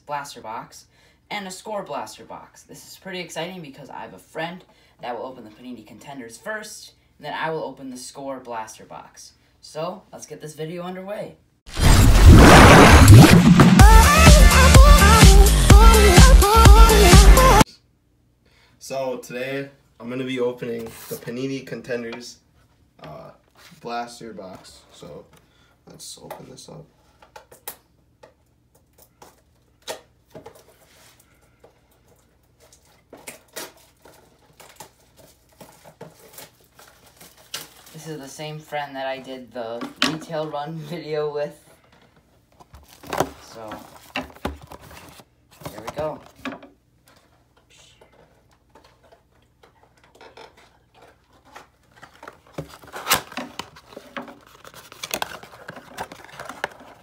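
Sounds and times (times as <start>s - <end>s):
packaging being handled and opened: 32.0s - 38.0s, 42.6s - 46.4s, 48.0s - 57.0s
cardboard box rustling: 42.6s - 46.3s, 50.5s - 57.0s.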